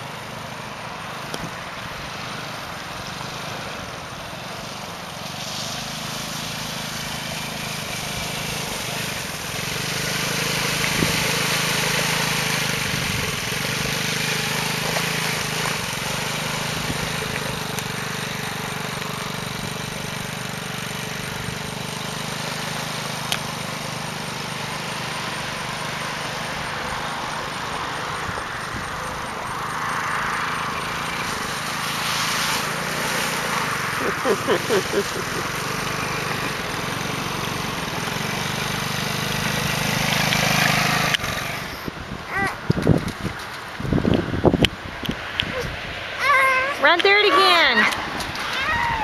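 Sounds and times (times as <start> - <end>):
quad bike engine running: 0.0 - 49.0
water splashing under wheels: 0.0 - 49.0.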